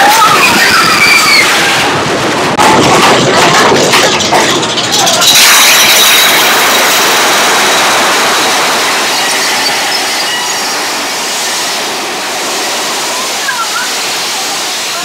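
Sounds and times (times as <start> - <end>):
roller coaster wheels rumbling: 0.0 - 15.0
faint high wheel squeal: 9.0 - 10.9.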